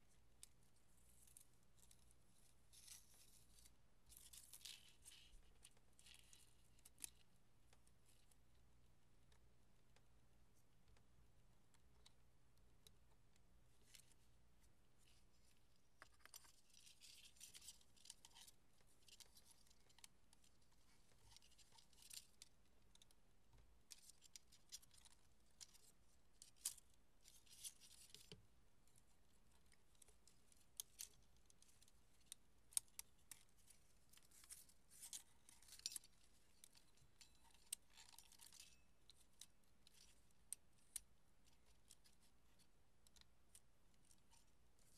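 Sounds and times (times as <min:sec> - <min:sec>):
film rustling and scraping: 0:33.0 - 0:40.2.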